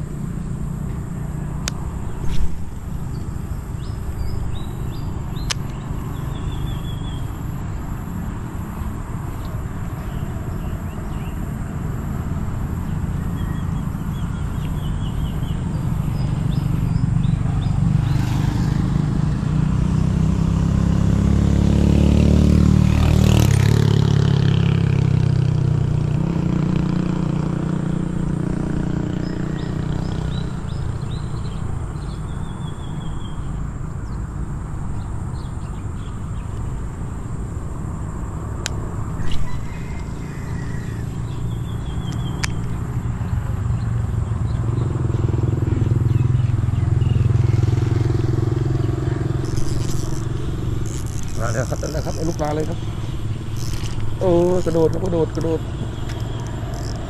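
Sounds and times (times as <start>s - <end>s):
vehicle engine passing by: 0.0s - 34.2s, 35.4s - 57.0s
sharp click: 42.1s - 42.8s.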